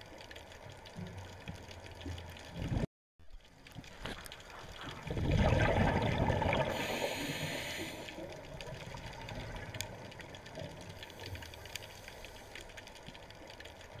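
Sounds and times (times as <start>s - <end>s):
faint underwater clicks: 0.0s - 14.0s
diver exhaling bubbles: 5.0s - 8.0s
underwater hiss: 5.6s - 8.4s, 11.0s - 12.7s.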